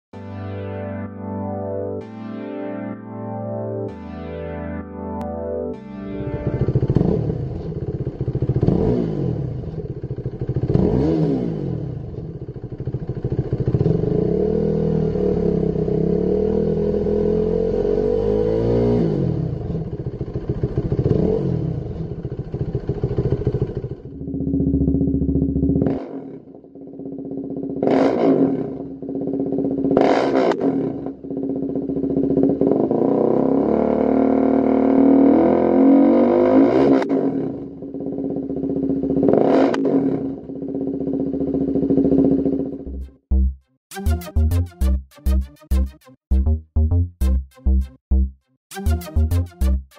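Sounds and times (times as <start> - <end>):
motorcycle engine revving: 6.3 - 43.5
motorcycle engine idling: 6.4 - 11.2, 11.8 - 15.2, 19.4 - 27.9, 28.8 - 30.2, 30.9 - 33.1, 37.6 - 39.3, 40.2 - 43.4
throttle blips: 42.8 - 49.9.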